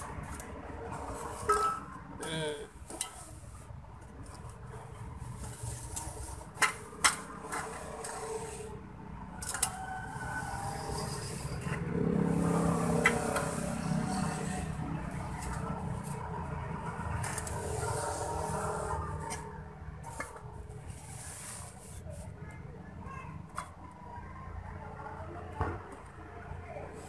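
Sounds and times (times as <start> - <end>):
metal knocks and scrapes: 0.2 - 2.0, 5.3 - 8.7.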